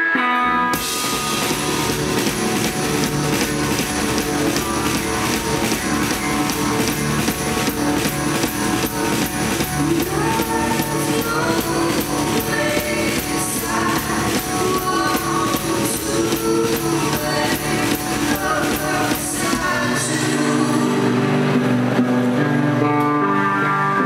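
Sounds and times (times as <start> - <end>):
electric guitar: 0.0 - 24.0
woman singing: 8.4 - 21.6.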